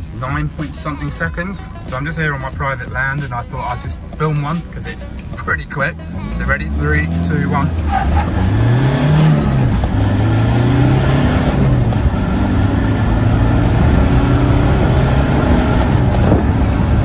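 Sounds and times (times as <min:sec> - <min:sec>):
diesel engine accelerating hard: 0:03.8 - 0:17.0.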